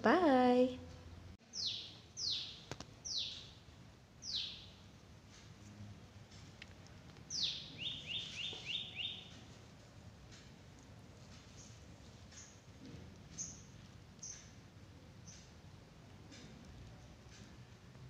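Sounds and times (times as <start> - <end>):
bird chirping: 1.4 - 4.9, 7.3 - 9.6, 11.4 - 12.7, 13.3 - 14.6, 15.2 - 15.6.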